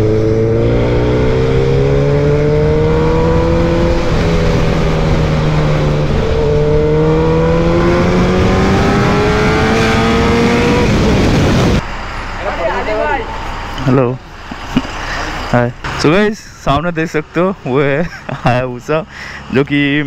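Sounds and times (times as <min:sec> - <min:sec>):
wind rushing: 0:00.0 - 0:13.7.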